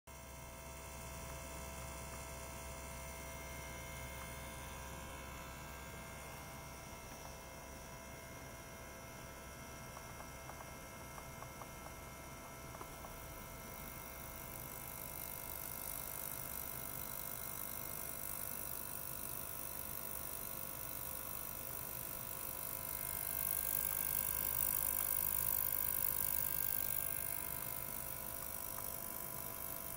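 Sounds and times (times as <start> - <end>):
faint ticks: 12.7 - 13.3
ultrasonic cleaner humming: 19.4 - 29.9.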